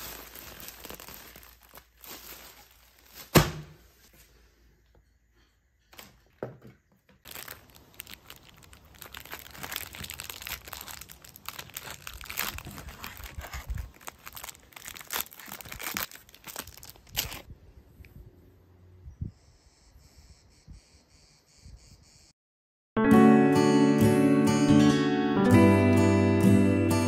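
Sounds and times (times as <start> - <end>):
plastic wrapper crinkling and tearing: 0.0 - 3.4, 7.2 - 17.5.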